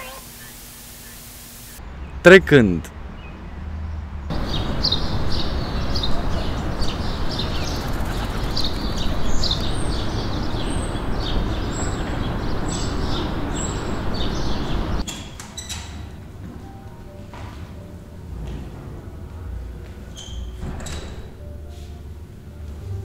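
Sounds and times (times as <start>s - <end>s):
birds chirping: 0.0s - 15.0s
dense outdoor background noise: 0.0s - 23.0s.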